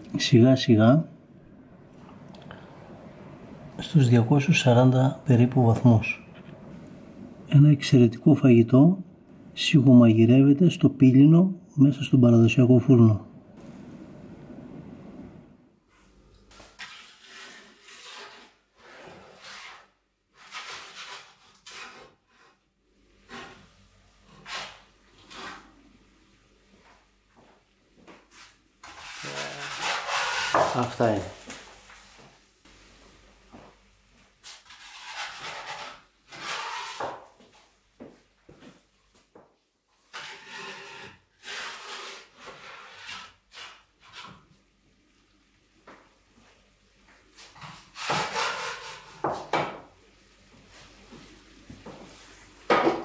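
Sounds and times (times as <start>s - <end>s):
wooden peel scraping oven floor: 16.6s - 22.6s, 23.2s - 25.8s, 28.4s - 32.0s, 34.4s - 37.3s, 40.1s - 44.4s, 47.4s - 49.6s.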